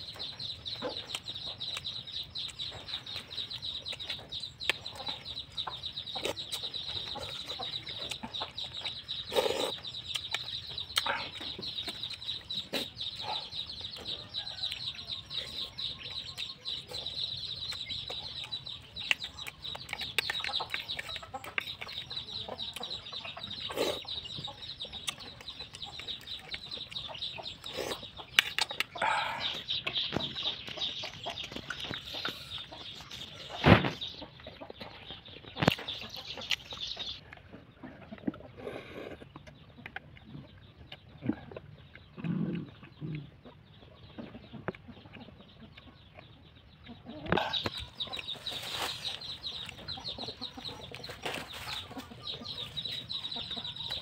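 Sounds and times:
chewing and lip-smacking: 0.0s - 54.0s.

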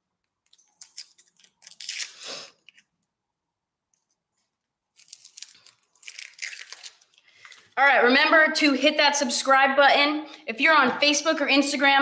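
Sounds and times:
onion skin crackling and tearing: 0.4s - 2.7s, 4.9s - 7.8s.

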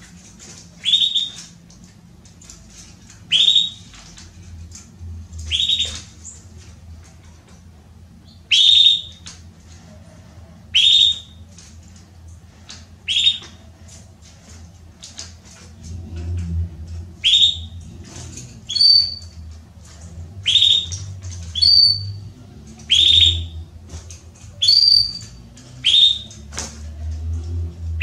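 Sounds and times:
canary calling: 0.8s - 1.5s, 3.3s - 4.0s, 5.4s - 6.4s, 8.2s - 9.3s, 10.7s - 11.4s, 13.0s - 13.6s, 17.2s - 17.8s, 18.6s - 19.4s, 20.4s - 22.3s, 22.9s - 23.7s, 24.6s - 26.5s.

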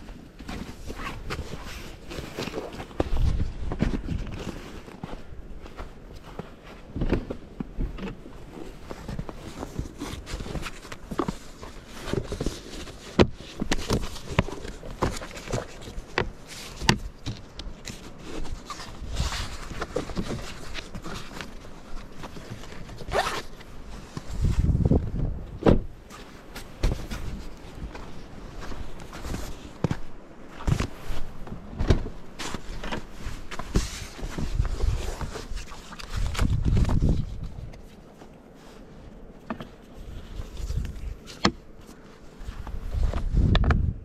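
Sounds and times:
handling clicks knocks and rustles: 0.4s - 24.3s, 39.3s - 43.8s
zips being pulled: 23.1s - 23.5s.

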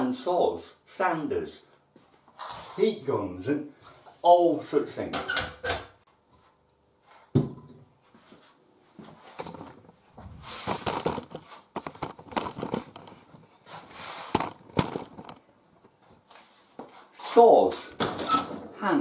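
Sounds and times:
camera handling knocks and rustling: 10.7s - 13.5s, 14.3s - 15.4s.

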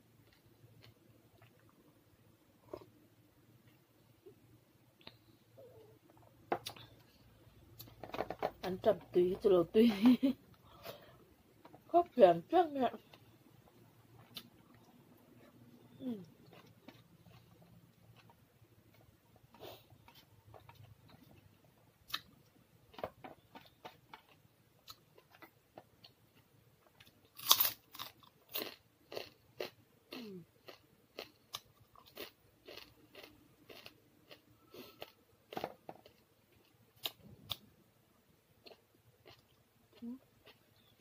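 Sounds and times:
chewing crisp fried food: 14.1s - 22.3s, 22.9s - 37.6s, 38.6s - 41.0s.

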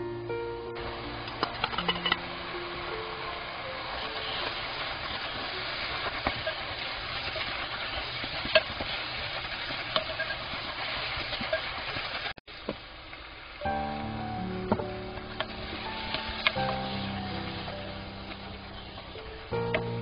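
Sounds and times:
food sizzling in a frying pan: 0.8s - 20.0s
wooden spatula stirring: 4.2s - 12.3s.

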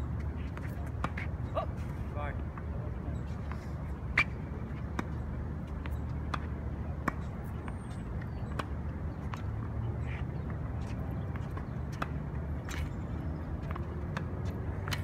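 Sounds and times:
tennis ball bouncing on court: 4.2s - 9.6s, 10.5s - 12.9s, 13.6s - 15.0s.

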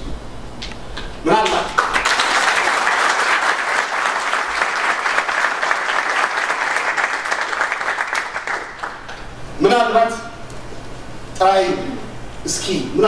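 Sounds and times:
audience applauding: 1.4s - 9.2s.

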